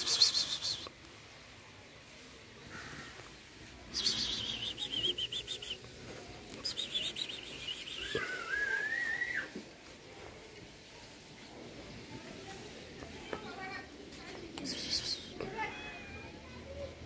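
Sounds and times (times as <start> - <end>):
bird whistled note: 4.0 - 5.8.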